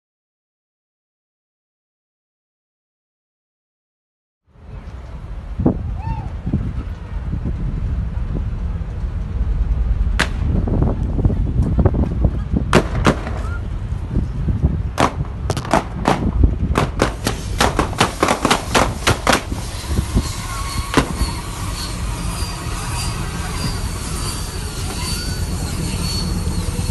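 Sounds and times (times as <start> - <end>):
gunshots: 12.7 - 13.6, 15.0 - 19.4.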